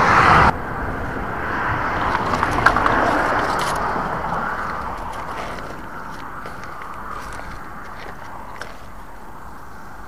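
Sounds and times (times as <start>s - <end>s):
car tyre noise passing: 0.0s - 10.0s
rope clicking and scraping: 2.0s - 9.7s.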